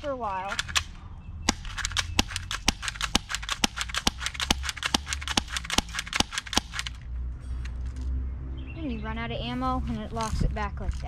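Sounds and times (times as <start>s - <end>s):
airsoft pistol shots: 1.5s - 7.0s.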